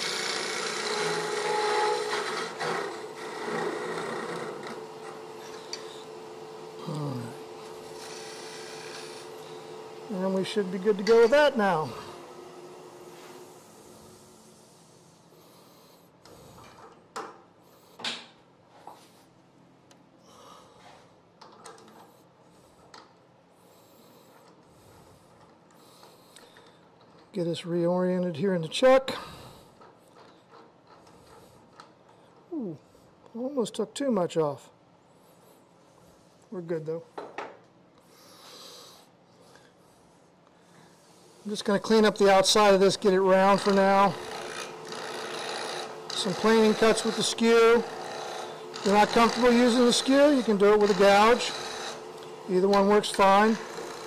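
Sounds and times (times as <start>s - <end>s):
lathe humming: 0.0s - 14.8s, 41.4s - 54.0s
hiss of wood shavings cut: 40.8s - 54.0s.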